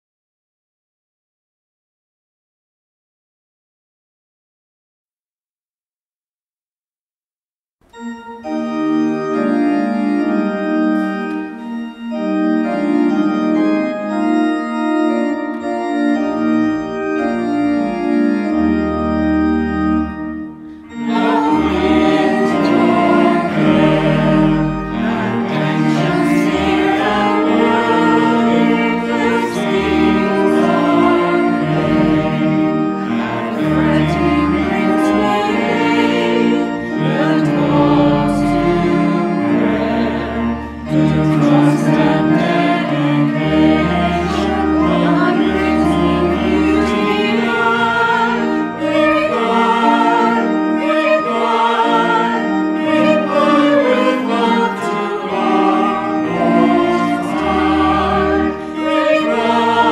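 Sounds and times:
church organ chords: 7.8 - 59.9
choir singing a hymn: 8.4 - 59.9
cello bowing: 20.5 - 59.9.

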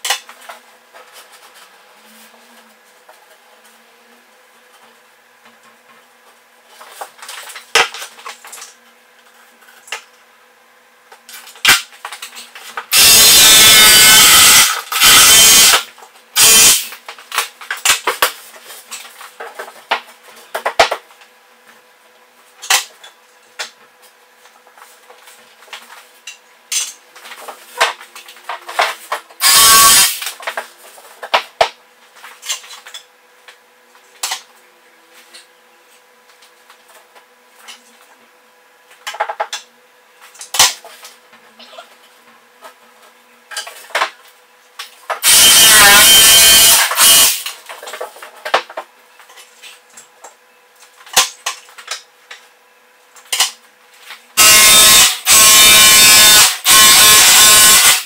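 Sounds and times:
power tool running: 12.9 - 16.9, 29.4 - 30.2, 45.2 - 47.5, 54.4 - 58.0.

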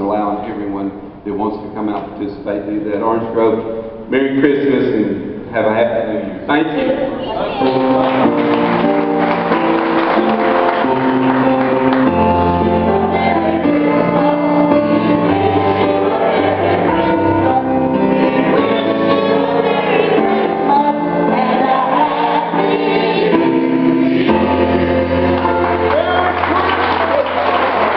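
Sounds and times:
choir singing: 7.2 - 27.9
instrumental accompaniment: 7.4 - 27.9
held bass notes: 7.6 - 27.9.

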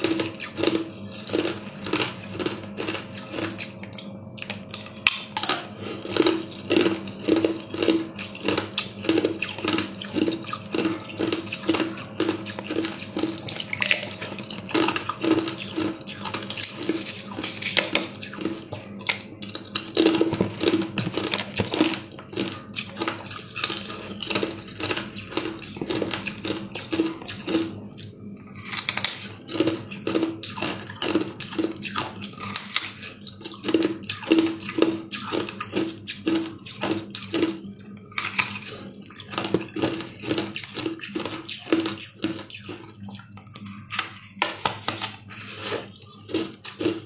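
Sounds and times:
plastic cup crinkling: 4.5 - 27.7, 39.3 - 47.0
plastic scraping against ice: 19.6 - 27.7.

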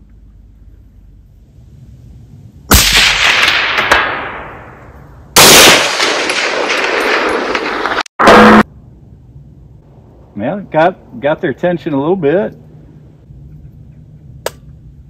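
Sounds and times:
rifle shot echoing: 2.7 - 8.6.

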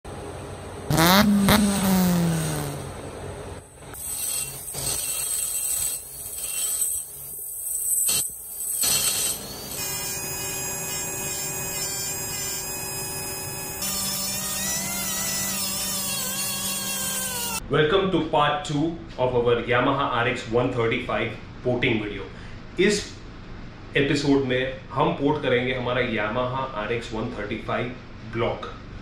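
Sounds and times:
rotary grinder grinding metal: 4.0 - 17.6.

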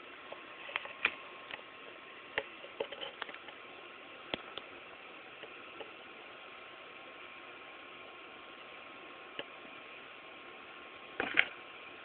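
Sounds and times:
steady hiss: 0.0 - 12.0
light clicks and scratches: 2.4 - 3.6.

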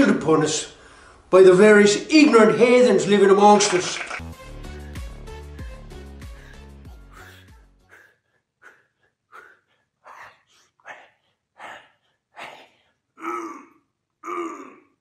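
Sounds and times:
man breathing hard: 4.6 - 13.5
man groaning with strain: 13.2 - 15.0.

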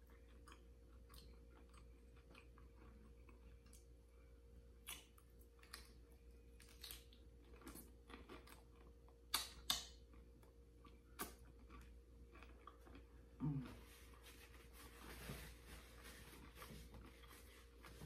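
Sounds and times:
chewing: 0.0 - 14.3.

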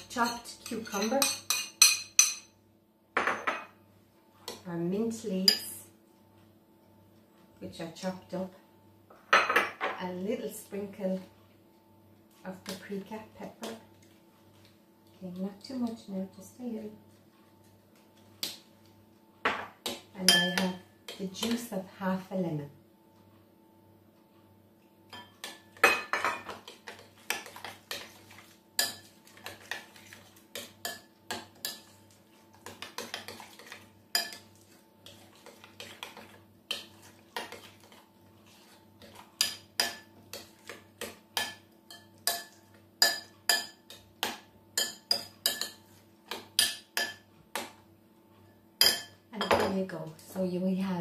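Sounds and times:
spoon clinking against glass bowl: 0.1 - 2.5, 20.2 - 20.8, 34.2 - 34.4, 41.4 - 43.8, 48.8 - 49.7.

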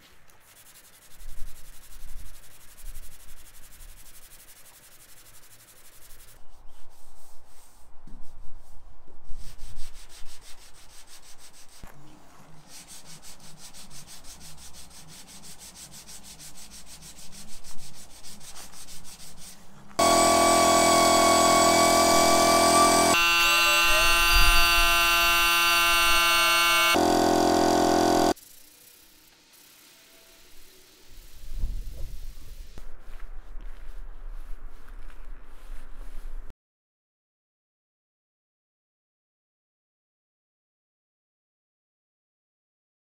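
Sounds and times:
sanding block rubbing: 0.4 - 8.8, 9.4 - 11.8, 12.5 - 28.4
loud droning tone: 20.0 - 28.4.

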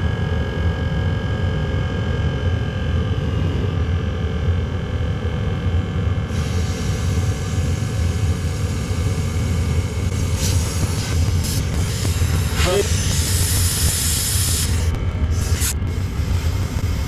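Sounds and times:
heater combustion rumble: 2.5 - 17.0
compressed air blast: 6.3 - 8.8, 10.1 - 17.0.

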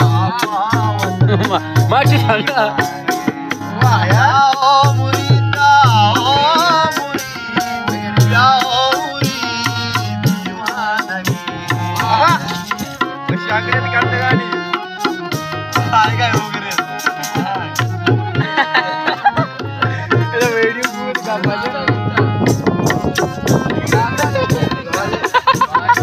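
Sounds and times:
man singing folk song: 0.0 - 2.8, 3.6 - 14.9, 19.9 - 26.0
hand drum beat: 0.0 - 26.0
harmonium chords: 0.0 - 26.0.

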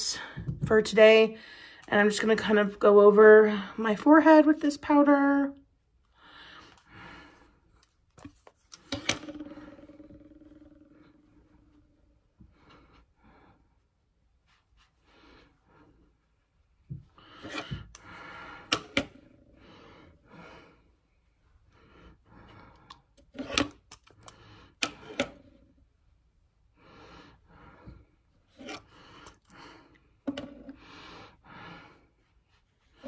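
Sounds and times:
brush rubbing face powder: 13.9 - 16.9.

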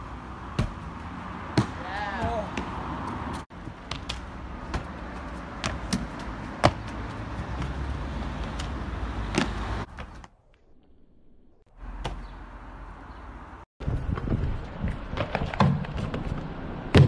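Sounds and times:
steady outdoor rumble: 0.0 - 17.0
feet landing on concrete: 3.5 - 7.8, 8.4 - 10.3.

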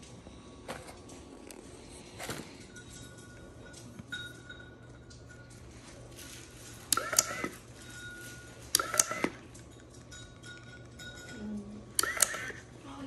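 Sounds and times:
small motor whirring: 6.9 - 7.6, 12.0 - 12.6.

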